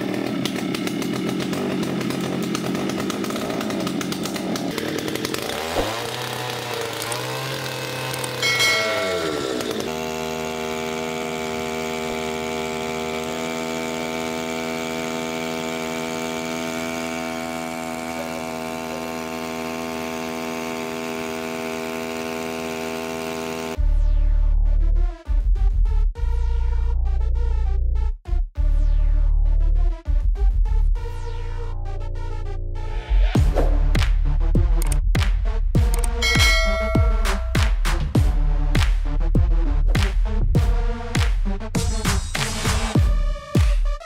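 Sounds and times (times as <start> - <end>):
outboard motor running: 0.0 - 23.8, 35.8 - 38.4.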